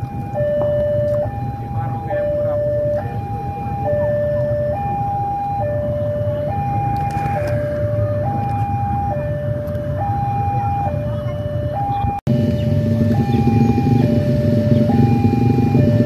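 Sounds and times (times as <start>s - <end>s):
level crossing two-tone alarm: 0.0s - 16.0s.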